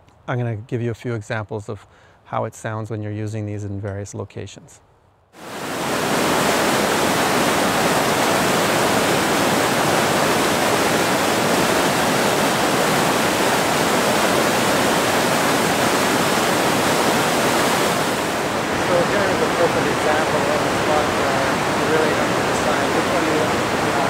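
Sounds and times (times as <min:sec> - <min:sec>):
water rushing over rocks: 0:05.4 - 0:24.0.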